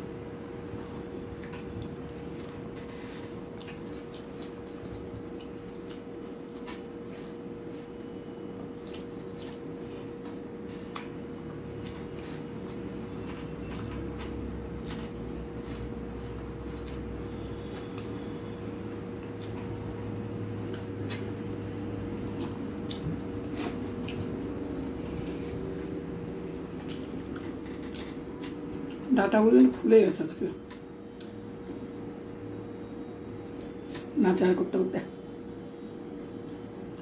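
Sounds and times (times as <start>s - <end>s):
steady hum: 0.0s - 37.0s
wet chewing smacks: 0.4s - 2.7s, 3.5s - 7.9s, 8.6s - 29.1s, 30.6s - 32.4s, 35.3s - 37.0s.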